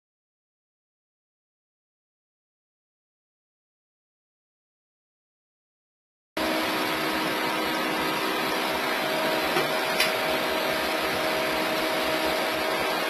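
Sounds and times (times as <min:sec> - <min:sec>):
fans blowing hum: 0:06.4 - 0:13.0.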